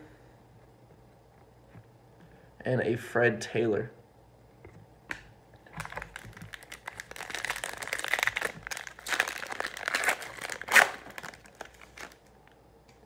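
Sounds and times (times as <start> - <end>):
wrapper crinkling and tearing: 5.7 - 12.4.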